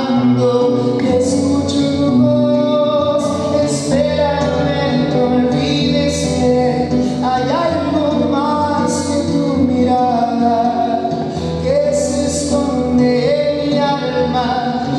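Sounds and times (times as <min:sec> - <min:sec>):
acoustic guitar: 0:00.0 - 0:14.9
man singing: 0:00.0 - 0:14.9.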